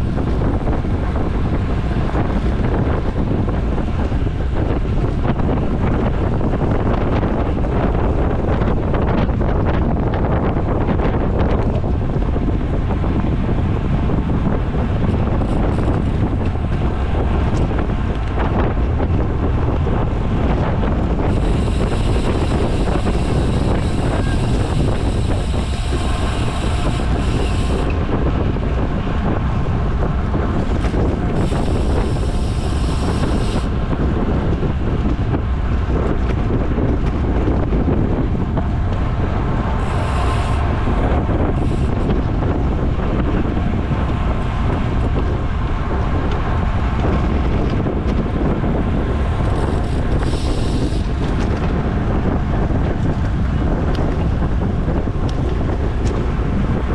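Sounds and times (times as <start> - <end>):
wind buffeting microphone: 0.0 - 56.9
high steady whir: 14.0 - 35.4, 36.0 - 45.4, 47.0 - 56.3.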